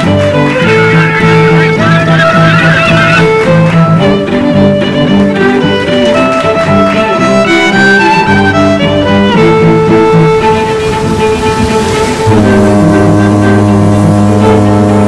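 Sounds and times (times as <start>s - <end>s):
melody in long held notes: 0.0s - 15.0s
low sustained note: 9.4s - 15.0s.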